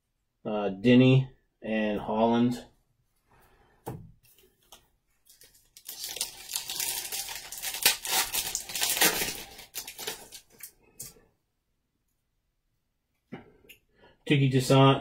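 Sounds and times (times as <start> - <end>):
card pack wrapper tearing: 5.3 - 10.7.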